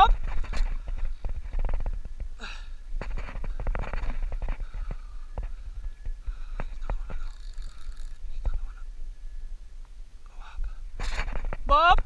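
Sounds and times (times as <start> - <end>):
rubbing on microphone: 0.0 - 2.2, 3.0 - 8.9, 10.4 - 12.0
wind rumble: 0.0 - 12.0
fishing reel and rod clicks: 6.7 - 8.8.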